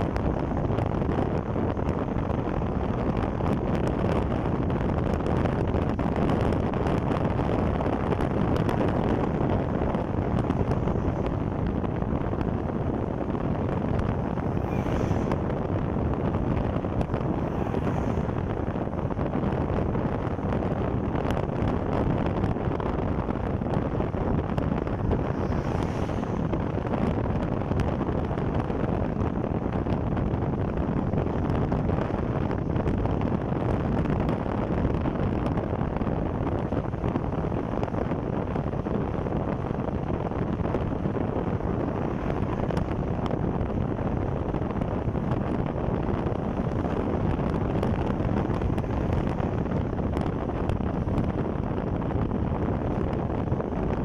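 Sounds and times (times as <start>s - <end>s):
motorcycle road and engine noise: 0.0s - 54.0s
wind rush on microphone: 0.0s - 54.0s.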